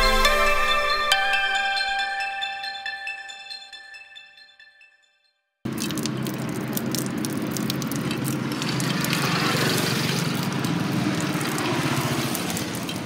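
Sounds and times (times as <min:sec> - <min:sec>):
liquid pouring and splashing: 0:05.7 - 0:13.0.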